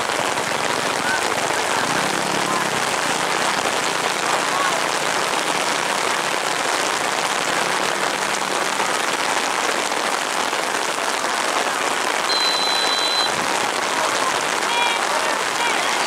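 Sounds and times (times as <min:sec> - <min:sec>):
heavy rain falling: 0:00.0 - 0:16.0
referee's whistle blast: 0:12.3 - 0:13.4.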